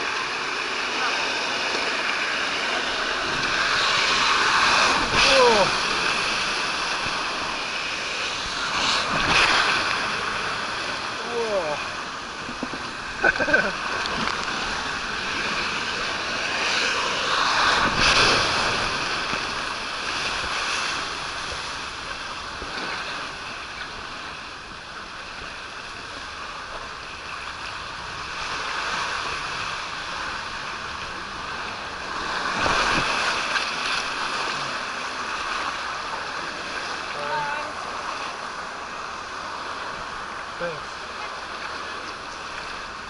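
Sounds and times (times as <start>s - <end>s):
water rushing down slide: 0.0s - 43.0s
wind on microphone: 11.8s - 24.2s.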